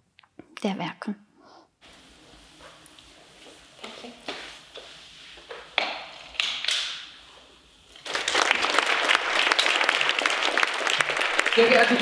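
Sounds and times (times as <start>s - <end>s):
audience applauding: 8.0s - 12.0s.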